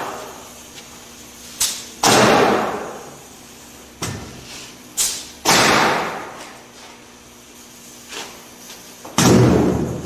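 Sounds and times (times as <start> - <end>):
nail gun firing: 2.0 - 3.0, 5.4 - 6.3, 9.2 - 10.0.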